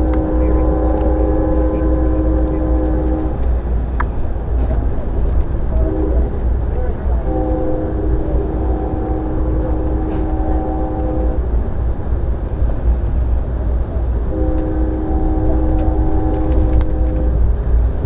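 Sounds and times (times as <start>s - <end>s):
locomotive horn blasts: 0.0s - 3.6s, 5.7s - 6.4s, 7.0s - 11.6s, 14.3s - 17.6s
rail car rumbling: 0.0s - 18.0s.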